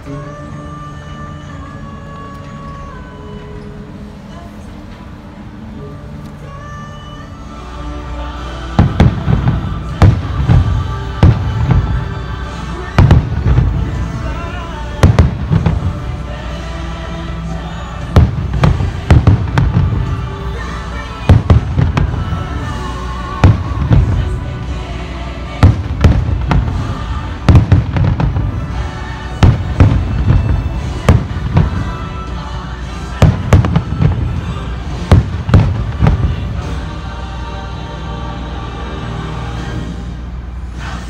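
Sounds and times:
fireworks bangs and booms: 0:08.7 - 0:17.0, 0:17.7 - 0:32.2, 0:33.1 - 0:36.8.

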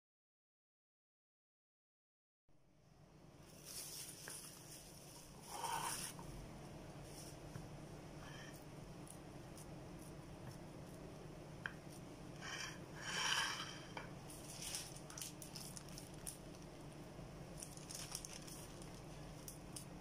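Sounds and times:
plastic bag crinkling: 0:03.5 - 0:06.1, 0:14.3 - 0:16.8, 0:17.5 - 0:20.0.

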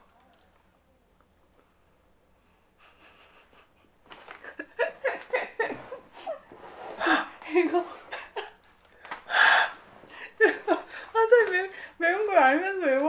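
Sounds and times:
man wheezing breaths: 0:09.1 - 0:11.1.

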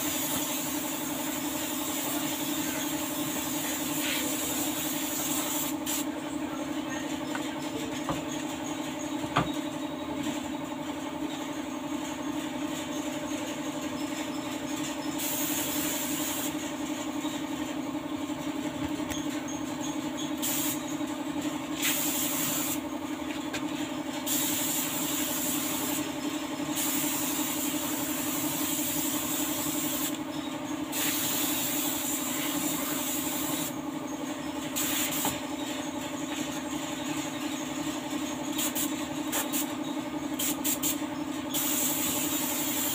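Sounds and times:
paint spray gun hissing: 0:00.0 - 0:06.1, 0:15.2 - 0:16.6, 0:20.4 - 0:20.8, 0:21.8 - 0:22.8, 0:24.3 - 0:26.1, 0:26.8 - 0:30.2, 0:30.9 - 0:33.7, 0:34.8 - 0:35.4, 0:38.5 - 0:39.7, 0:40.4 - 0:42.9
steady low hum: 0:00.0 - 0:42.9.

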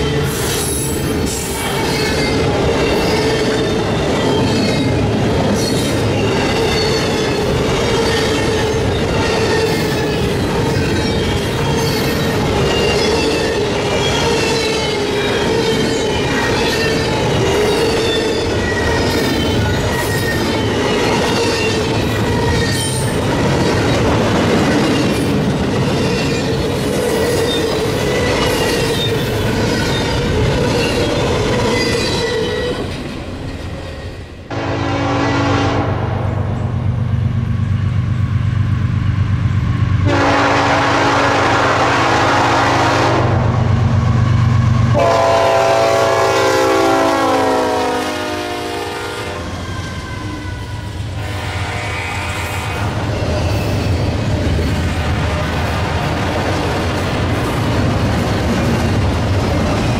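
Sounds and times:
freight train cars rolling: 0:00.0 - 0:59.9
locomotive horn: 0:34.5 - 0:36.6, 0:40.0 - 0:43.7, 0:44.9 - 0:53.1.

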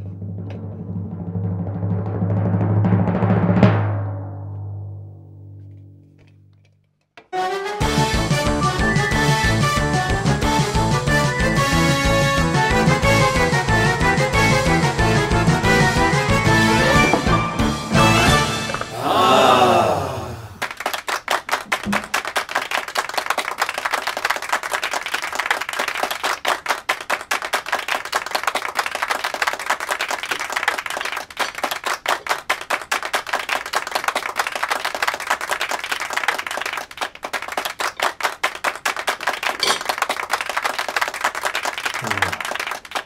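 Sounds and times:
background music: 0:07.3 - 0:19.6
applause: 0:18.3 - 0:43.0.

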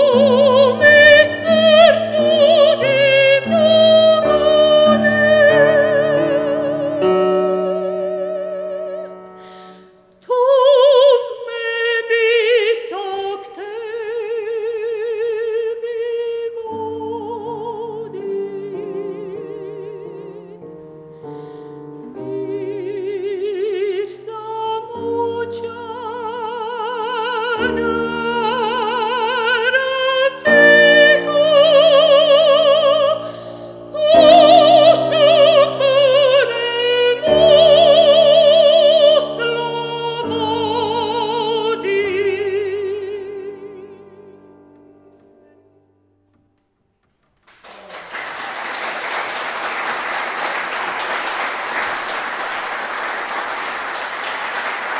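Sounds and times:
soprano singing: 0:00.0 - 0:46.0
grand piano accompaniment: 0:00.0 - 0:54.9
audience applause: 0:47.4 - 0:54.9.

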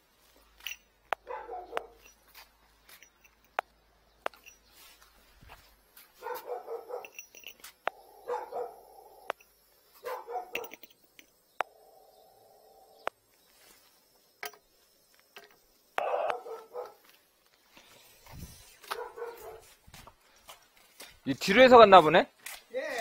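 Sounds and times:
dog barking: 0:01.2 - 0:02.0, 0:06.2 - 0:07.2, 0:08.1 - 0:09.2, 0:10.0 - 0:10.8, 0:16.0 - 0:17.1, 0:18.9 - 0:19.7.

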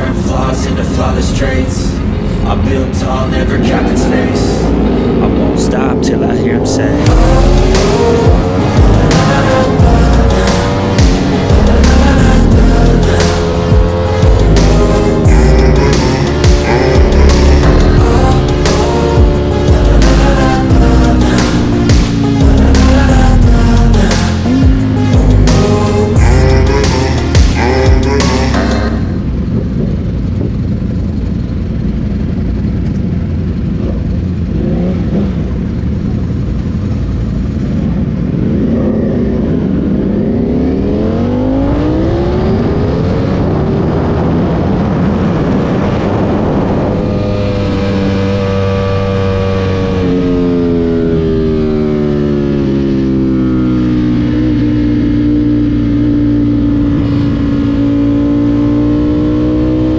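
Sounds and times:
motorcycle engine accelerating: 0:00.0 - 0:59.9
wind rush on microphone: 0:28.9 - 0:52.1.

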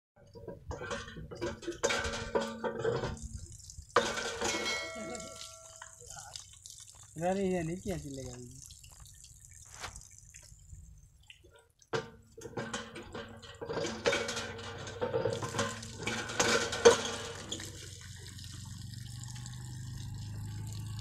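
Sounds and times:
pump handle knocking and clanking: 0:00.2 - 0:03.4, 0:04.0 - 0:05.8, 0:11.9 - 0:17.9
water spurting and splashing: 0:00.8 - 0:21.0.

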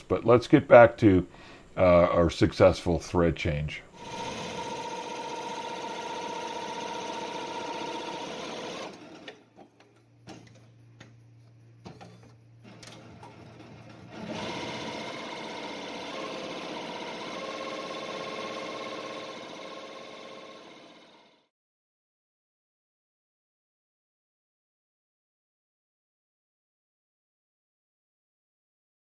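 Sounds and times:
embroidery machine stitching: 0:04.0 - 0:09.4, 0:12.6 - 0:21.5.

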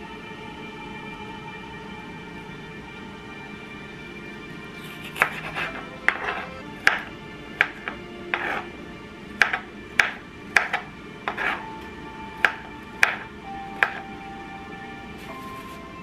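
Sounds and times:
soft background music: 0:00.0 - 0:16.0
knife chopping on wooden board: 0:04.8 - 0:08.7, 0:09.4 - 0:11.6, 0:12.4 - 0:14.0.

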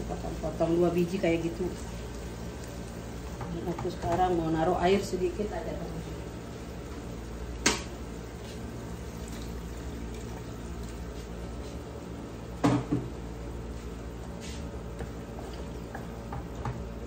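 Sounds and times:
water pouring into hot pan: 0:09.0 - 0:11.1.

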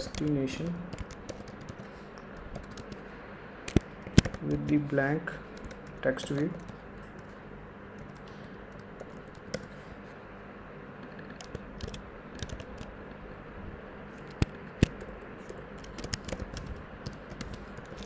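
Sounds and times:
typing on computer keyboard: 0:00.0 - 0:03.0, 0:03.7 - 0:04.8, 0:05.6 - 0:07.3, 0:08.0 - 0:09.7, 0:11.2 - 0:12.9, 0:14.2 - 0:18.0.

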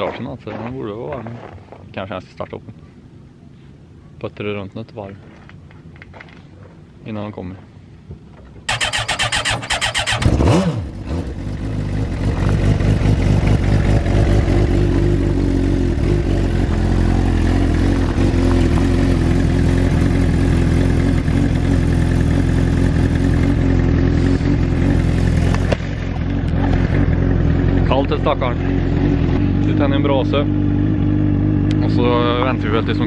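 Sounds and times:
kart engine idling: 0:08.7 - 0:33.0.

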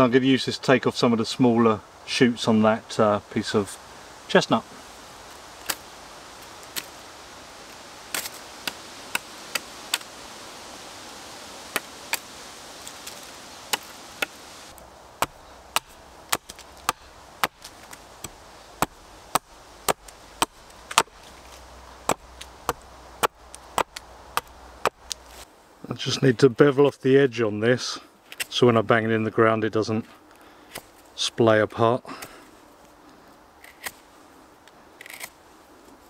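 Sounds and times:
knife chopping wood: 0:08.1 - 0:10.1, 0:11.7 - 0:12.3, 0:13.0 - 0:14.4, 0:15.2 - 0:21.4, 0:22.0 - 0:25.2.

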